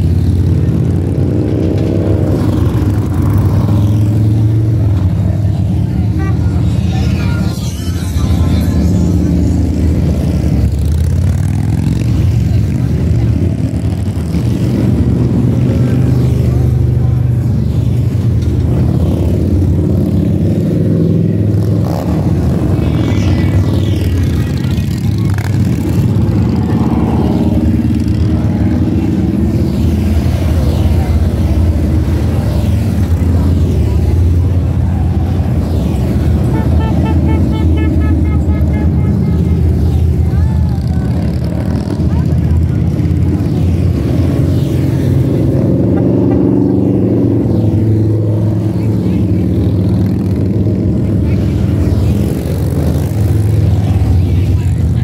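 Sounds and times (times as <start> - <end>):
motorcycle engines rumbling: 0.0 - 55.0.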